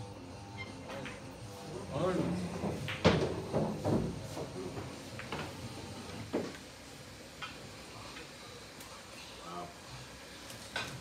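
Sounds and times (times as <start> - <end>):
pool balls clacking: 2.0 - 5.6
dull knock: 2.6 - 4.5.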